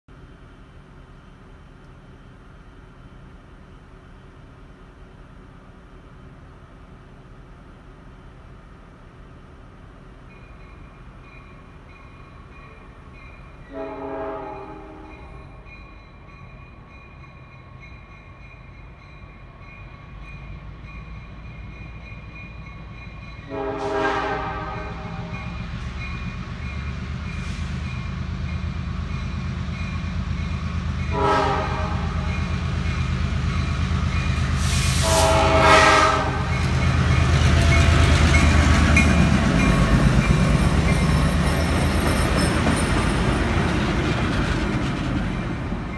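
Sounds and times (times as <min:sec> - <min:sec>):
diesel locomotive engine rumble: 0:00.1 - 0:45.9
crossing bell ringing: 0:10.3 - 0:23.8
locomotive horn blasts: 0:13.7 - 0:15.6, 0:23.5 - 0:25.5, 0:31.1 - 0:32.4, 0:34.9 - 0:36.6.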